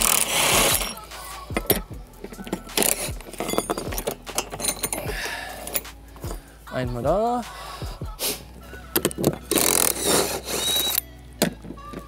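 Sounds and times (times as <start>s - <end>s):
steel bolts clinking: 0.0s - 6.4s.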